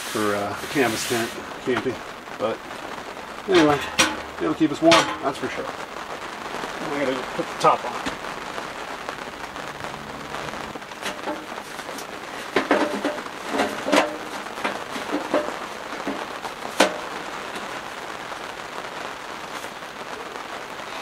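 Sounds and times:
rain on canvas tent: 0.0 - 21.0
sheet metal clanking: 4.9 - 5.4.

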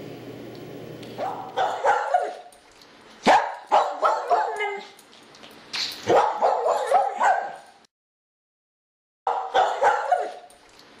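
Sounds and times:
dog barking and yipping: 1.2 - 2.6, 3.2 - 5.0, 6.0 - 7.8, 9.3 - 10.6.

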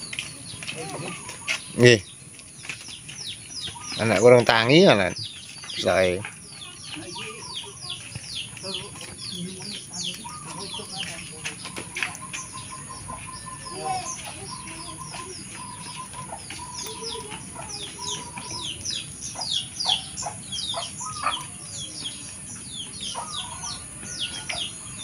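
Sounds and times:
small birds chirping: 0.0 - 25.0
chicken clucking: 5.8 - 25.0.

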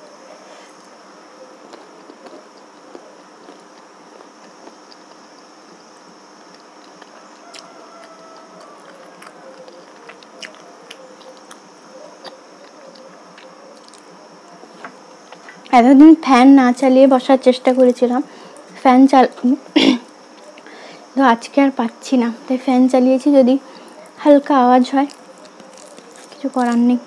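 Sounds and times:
electric fan humming: 0.0 - 27.0
chewing: 1.5 - 5.5, 6.4 - 15.7, 24.8 - 27.0.

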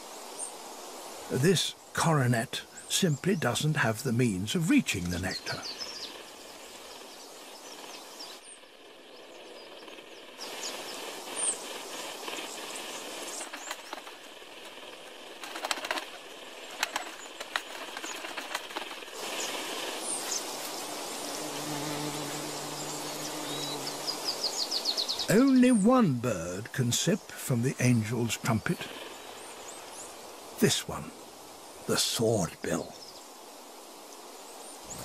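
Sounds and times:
hummingbird wings humming: 4.7 - 25.6, 34.6 - 35.0.

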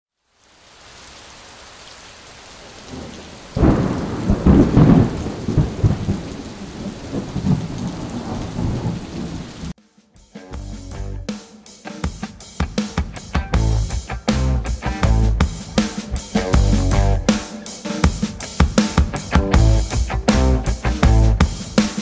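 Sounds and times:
steady rain hiss: 0.1 - 9.8, 10.9 - 22.0
thunderclap rumbling: 2.6 - 9.7, 15.3 - 17.4.

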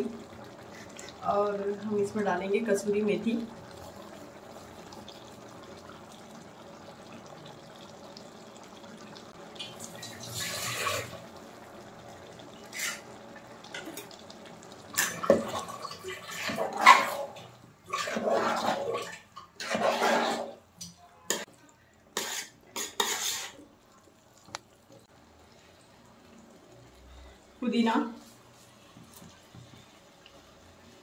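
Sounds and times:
metal spoon scraping metal pot: 17.9 - 20.6, 22.2 - 23.6.

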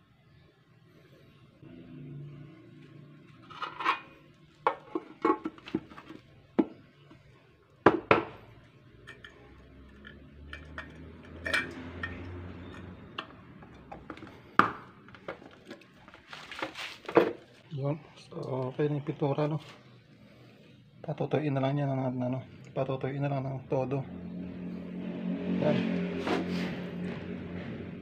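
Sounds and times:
metal paint can clinking: 9.0 - 14.0.

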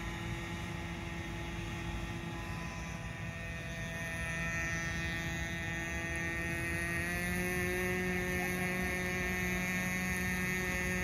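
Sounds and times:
high-pitched boat engine whine: 0.0 - 11.0.

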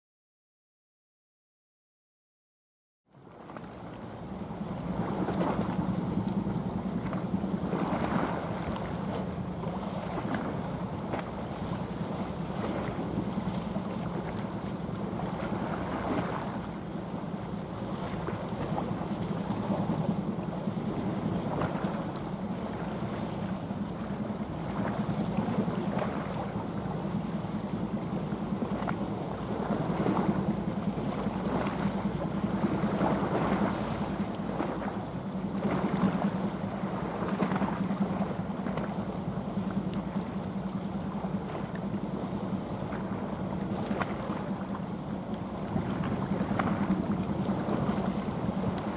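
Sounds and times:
boat diesel engine droning: 3.1 - 48.9
bow wave and sea wash: 3.1 - 48.9.

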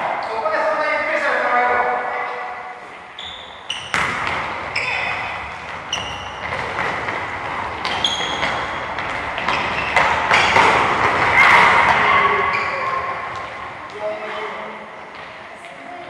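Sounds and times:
players' voices echoing: 0.0 - 16.0
shoe squeaks: 3.1 - 6.9, 7.8 - 13.3
soccer ball thudding: 3.8 - 12.0.

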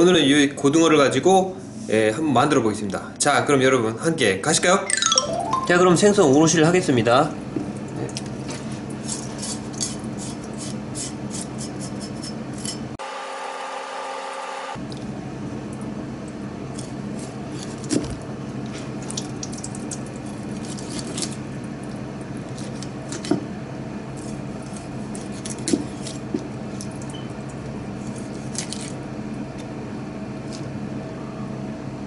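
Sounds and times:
steady background hum: 0.0 - 13.0, 14.3 - 32.0
knife cutting raw fish: 9.0 - 12.8, 24.2 - 26.5.

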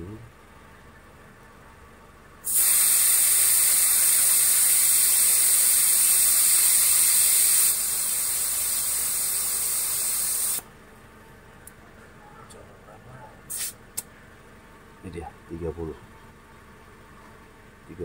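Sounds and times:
air hissing from tyre valve: 2.4 - 10.6, 13.5 - 13.8.

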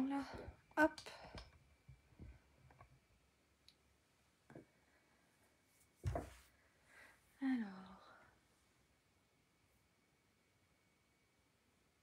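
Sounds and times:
faint clicks and light knocks: 0.2 - 3.0
thump: 6.0 - 6.4.

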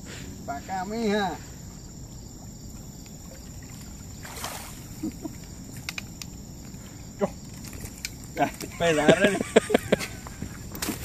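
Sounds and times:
insects chirping: 0.0 - 11.0
faint ticks: 5.2 - 8.8.

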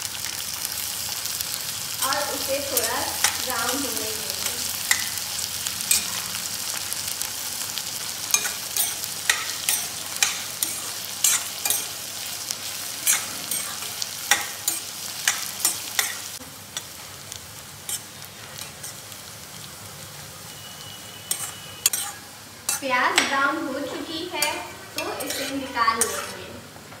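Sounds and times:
onions sizzling in oil: 0.0 - 27.0
spoon clinking and scraping pan: 4.8 - 5.2, 5.8 - 6.3, 8.2 - 12.0, 13.0 - 17.0, 21.2 - 23.3, 24.4 - 26.5.

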